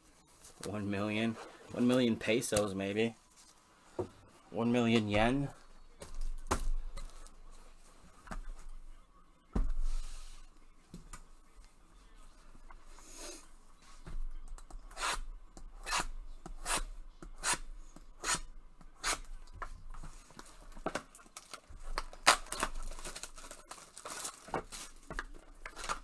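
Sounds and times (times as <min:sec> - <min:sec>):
plastic wrap crinkling and tearing: 0:20.4 - 0:26.0.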